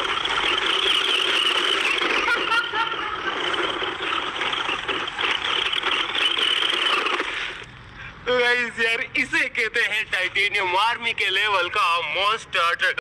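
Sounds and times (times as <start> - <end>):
toy truck motor and wheels: 0.0 - 7.7.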